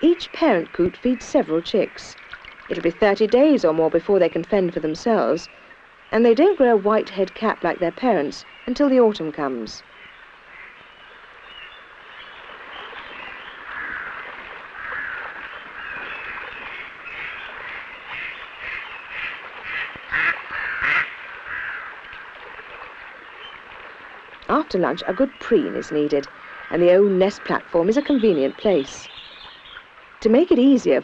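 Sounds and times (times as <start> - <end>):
sharp bird calls: 9.9 - 22.2.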